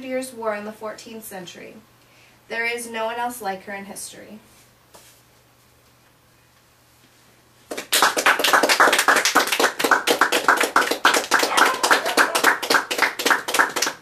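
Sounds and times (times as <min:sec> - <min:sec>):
audience clapping: 0:07.7 - 0:14.0.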